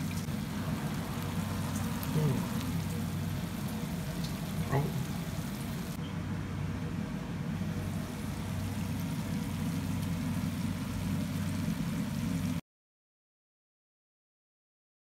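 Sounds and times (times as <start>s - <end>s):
low rumbling kitchen hum: 0.0s - 12.6s.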